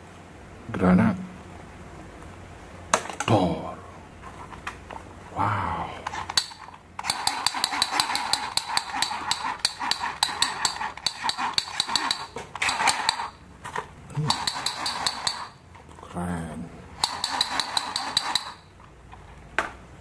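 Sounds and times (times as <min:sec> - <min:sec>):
toy gun electronic shooting effect: 0:06.3 - 0:13.4, 0:14.3 - 0:15.6, 0:17.0 - 0:18.6.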